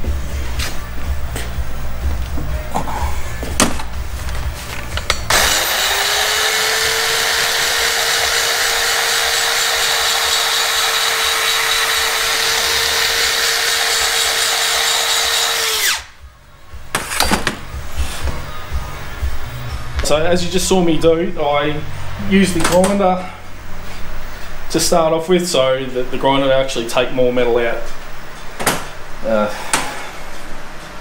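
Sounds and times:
grinder grinding metal: 0:05.2 - 0:16.2.

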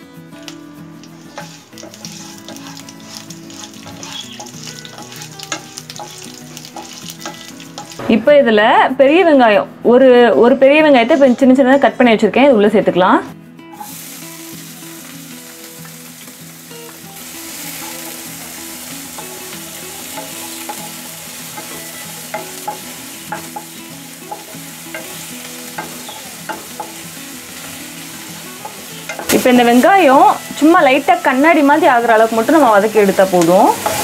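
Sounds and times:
onions sizzling in a pan: 0:00.0 - 0:08.2, 0:13.7 - 0:34.0
wooden spatula clicking on pan: 0:01.1 - 0:08.0.

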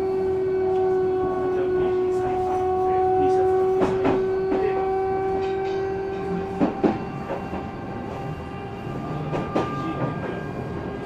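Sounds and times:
electric train motor whine: 0:00.0 - 0:11.0
rail-joint clicks: 0:03.7 - 0:04.7, 0:05.3 - 0:08.4, 0:09.1 - 0:10.4.

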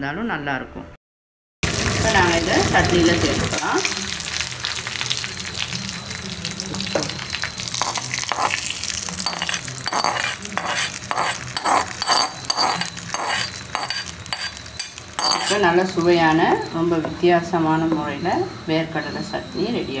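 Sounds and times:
seeds sizzling in hot oil: 0:01.6 - 0:17.3
metal spoon scraping a pan: 0:07.6 - 0:17.1.

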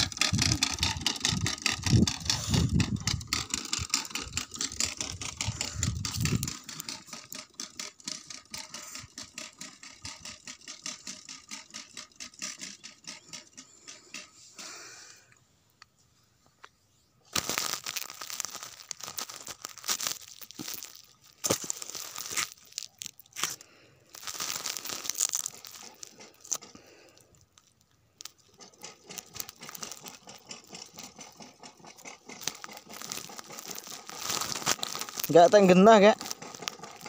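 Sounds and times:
dry litter rustling and crackling: 0:17.3 - 0:37.0.

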